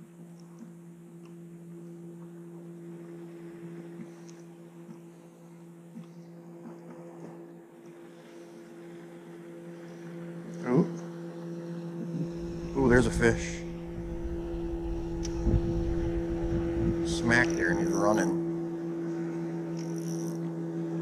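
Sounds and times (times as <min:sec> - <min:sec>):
electric motor humming: 0:08.0 - 0:21.0
person's voice: 0:12.7 - 0:13.7.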